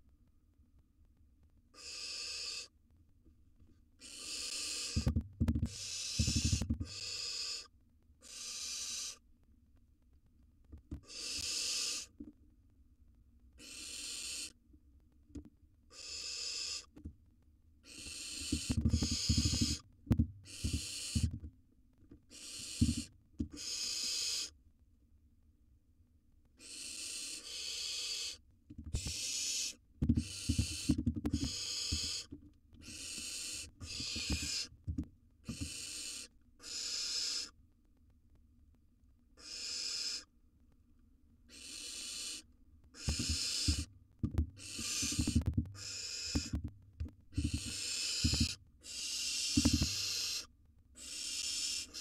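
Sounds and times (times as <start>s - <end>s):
owl nestlings hissing: 1.7s - 2.7s, 4.0s - 5.1s, 5.7s - 9.2s, 11.0s - 12.1s, 13.6s - 14.6s, 15.9s - 16.9s, 17.8s - 19.8s, 20.4s - 21.4s, 22.3s - 24.5s, 26.6s - 34.7s, 35.4s - 37.6s, 39.4s - 40.3s, 41.5s - 43.9s, 44.6s - 46.6s, 47.3s - 52.0s.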